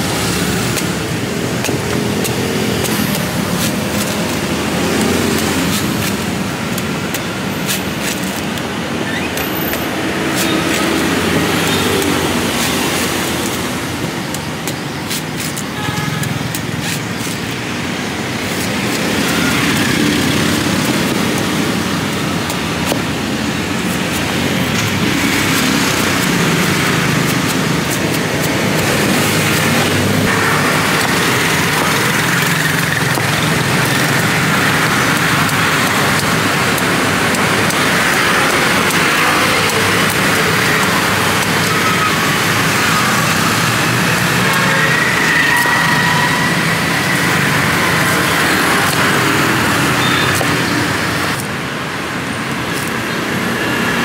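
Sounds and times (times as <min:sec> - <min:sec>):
road traffic rumble: 0:00.0 - 0:54.0
cleaver chopping coconut husk: 0:00.1 - 0:53.6.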